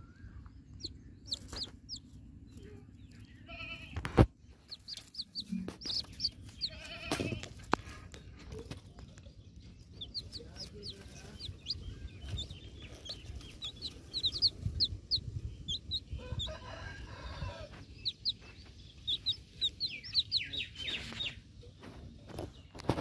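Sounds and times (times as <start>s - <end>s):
chicks cheeping: 0.0s - 23.0s
low rumble: 9.2s - 20.4s.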